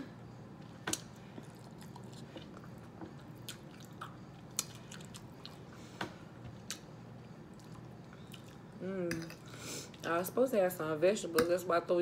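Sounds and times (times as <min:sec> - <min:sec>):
person chewing: 0:00.9 - 0:05.8, 0:06.6 - 0:10.1.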